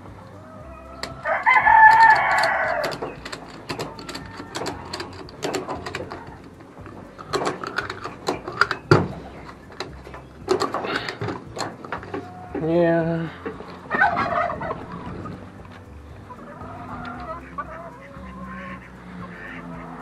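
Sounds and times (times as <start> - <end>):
clicks and rattles of straps: 0.0 - 20.0
rooster crowing: 0.2 - 6.7, 11.9 - 15.4.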